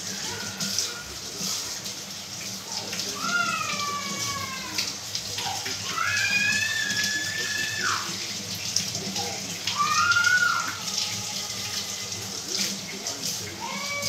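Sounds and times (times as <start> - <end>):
high wailing cries: 3.0 - 8.2, 9.3 - 12.4, 13.4 - 14.0.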